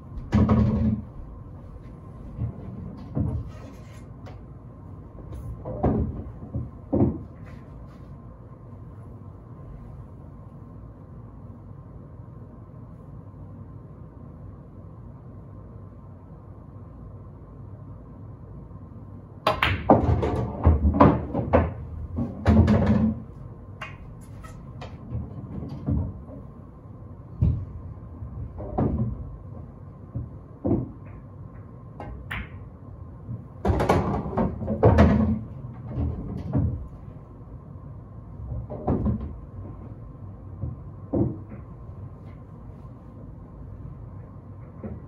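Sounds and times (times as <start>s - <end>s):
pool balls clacking: 0.2s - 1.2s, 5.5s - 7.6s, 19.5s - 26.6s, 27.5s - 32.7s, 33.6s - 37.1s, 38.4s - 42.2s
cue striking ball: 19.5s - 23.2s, 32.1s - 32.7s.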